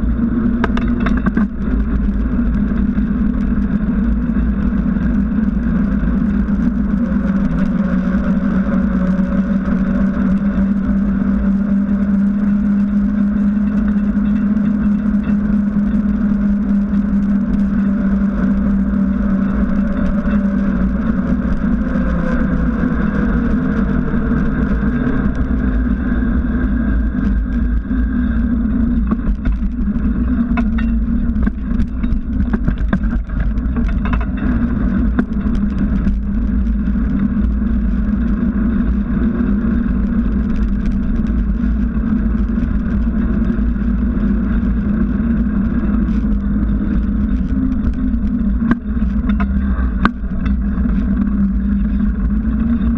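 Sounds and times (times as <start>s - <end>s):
bike tyre rolling on asphalt: 0.0s - 52.9s
wind noise on microphone: 0.0s - 52.9s.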